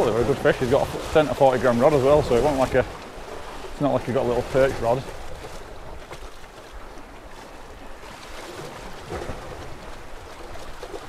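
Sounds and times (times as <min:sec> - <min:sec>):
surf hiss: 0:00.0 - 0:05.1
sea swell splashing against rocks: 0:00.0 - 0:11.0.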